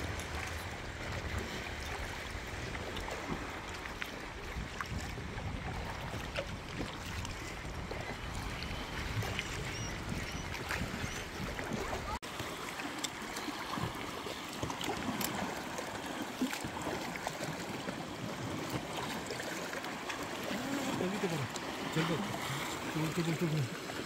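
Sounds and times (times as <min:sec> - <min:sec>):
wind rumble on microphone: 0:00.0 - 0:12.2
small waves lapping: 0:00.0 - 0:24.0
water splashes and drips: 0:00.0 - 0:24.0.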